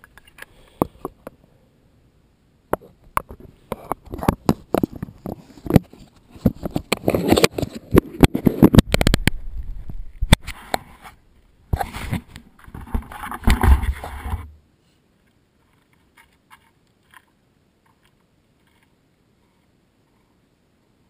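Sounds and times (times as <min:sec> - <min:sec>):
gloved hand handling camera: 0:02.8 - 0:09.4.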